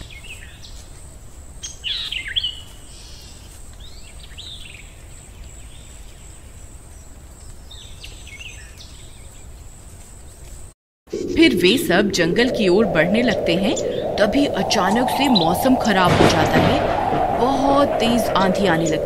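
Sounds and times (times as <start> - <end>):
birds chirping: 11.2 - 19.0.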